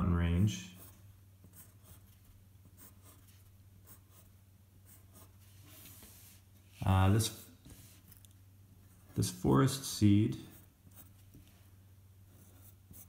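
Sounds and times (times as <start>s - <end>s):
pencil scratching on paper: 0.7s - 6.4s, 10.4s - 11.4s, 12.3s - 13.0s.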